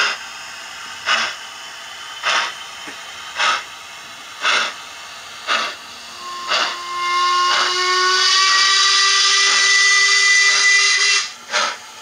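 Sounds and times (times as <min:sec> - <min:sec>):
model steam locomotive chuffs: 0:00.0 - 0:12.0
steam hiss: 0:00.0 - 0:12.0
steam whistle: 0:06.1 - 0:11.8.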